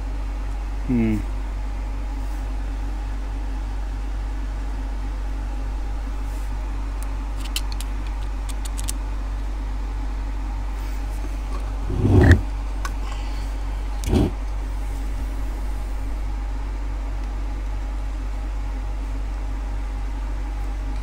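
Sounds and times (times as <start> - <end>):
steady low hum: 0.0 - 21.0
motor knocking and rustling: 11.2 - 12.5, 14.0 - 14.4.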